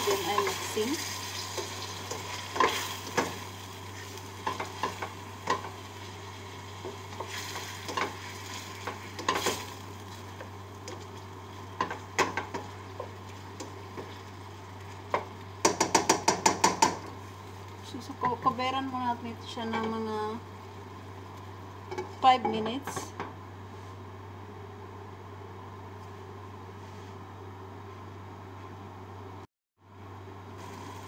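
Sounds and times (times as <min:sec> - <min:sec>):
chicken sizzling in a pan: 0:00.0 - 0:19.1, 0:30.6 - 0:31.0.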